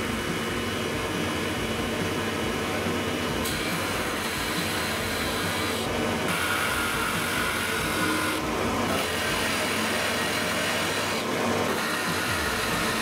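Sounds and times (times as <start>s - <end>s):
drill press cutting wood: 3.4s - 13.0s.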